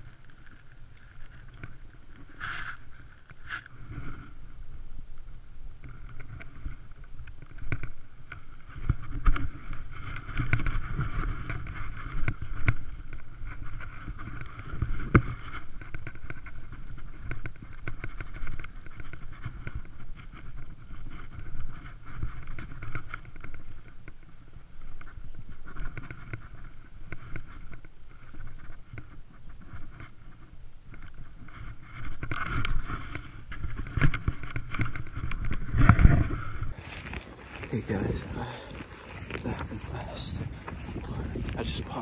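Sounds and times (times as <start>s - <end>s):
rustling handling noise: 0.0s - 4.2s, 31.1s - 42.0s
wind rumbling on microphone: 0.0s - 42.0s.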